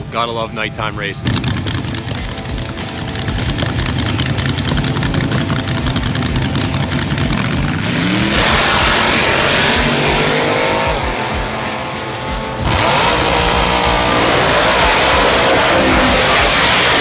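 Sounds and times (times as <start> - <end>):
race car engine revving: 1.2 - 17.0.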